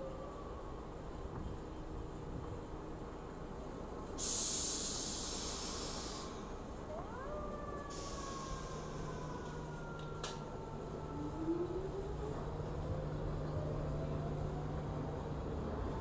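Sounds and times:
train air hiss: 4.1 - 6.7, 7.9 - 9.4.

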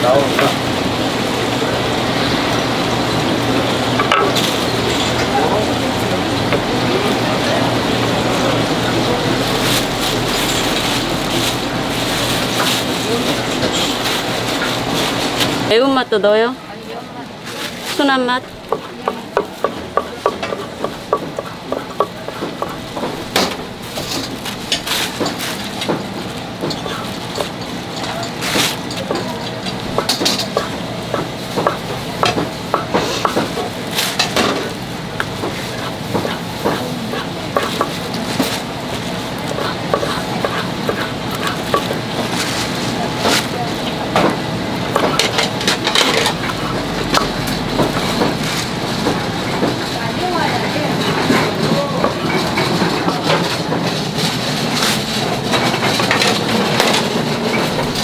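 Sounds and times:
plastic crinkling: 8.4 - 15.7, 21.6 - 32.6, 33.4 - 44.0
knife chopping on wooden board: 29.9 - 33.5, 35.4 - 38.0, 39.6 - 42.0.

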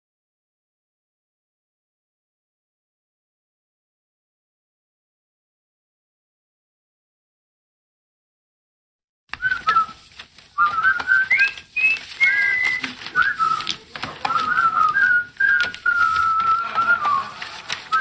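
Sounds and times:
person whistling: 9.4 - 10.0, 10.6 - 18.0.

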